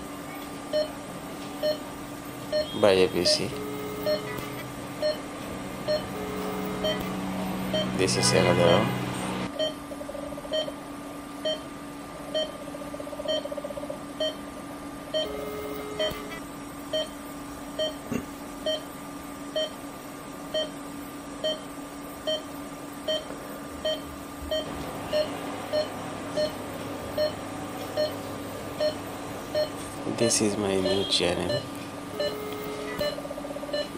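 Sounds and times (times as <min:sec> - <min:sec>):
equipment hum: 0:00.0 - 0:33.9
medical monitor beeping: 0:00.7 - 0:01.0, 0:01.6 - 0:09.8, 0:10.5 - 0:10.8, 0:12.3 - 0:12.6, 0:13.2 - 0:13.6, 0:14.2 - 0:14.5, 0:15.1 - 0:17.2, 0:17.8 - 0:18.9, 0:19.5 - 0:19.8, 0:21.4 - 0:33.9.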